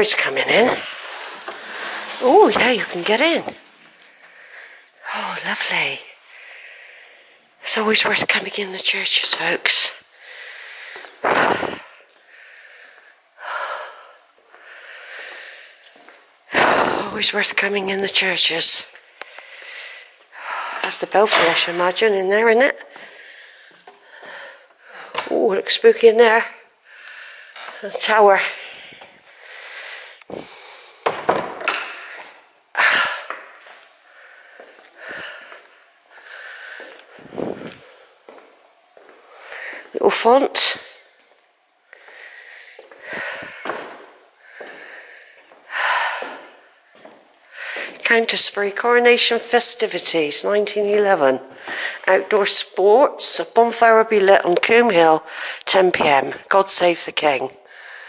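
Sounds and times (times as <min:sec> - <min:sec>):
person breathing: 0:03.9 - 0:05.5, 0:06.2 - 0:07.6, 0:10.1 - 0:17.1, 0:19.0 - 0:20.9, 0:22.8 - 0:25.3, 0:26.7 - 0:31.1, 0:31.7 - 0:38.4, 0:39.0 - 0:40.0, 0:40.9 - 0:48.0, 0:51.5 - 0:52.1, 0:55.3 - 0:55.7, 0:57.6 - 0:58.0
person breathing and sniffing: 0:28.6 - 0:31.0.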